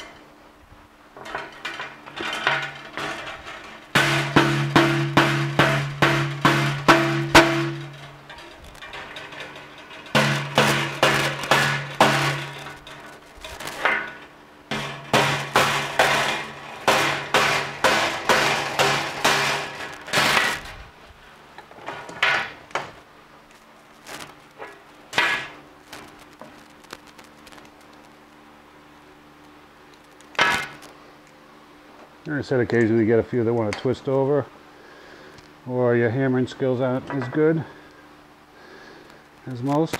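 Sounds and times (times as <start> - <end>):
hammer clanging on steel wire: 1.2 - 20.7.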